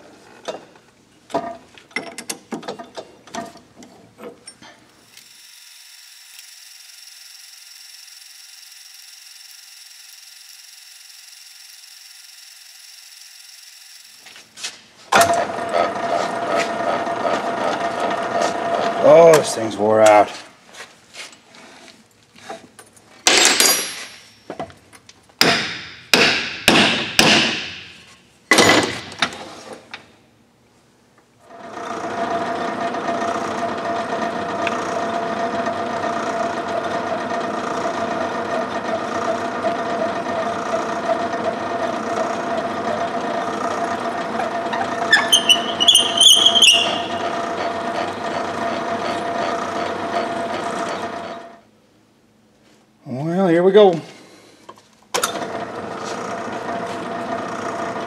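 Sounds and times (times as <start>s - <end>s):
metal lathe running: 15.2s - 19.4s, 31.5s - 51.6s, 55.4s - 58.0s
sharp metal knocks: 25.4s - 29.2s
brief high squeal: 45.1s - 47.2s.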